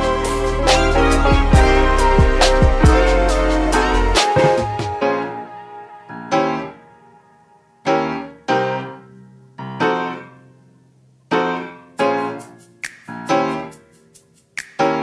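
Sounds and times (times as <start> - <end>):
keyboard chords ringing: 0.0 - 10.6.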